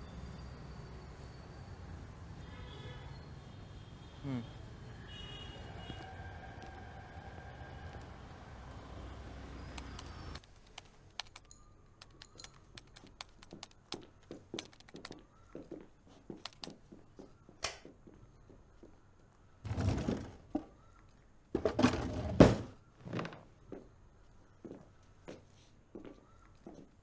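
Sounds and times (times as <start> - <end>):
keyboard typing clicks: 9.8 - 14.0, 14.6 - 15.2.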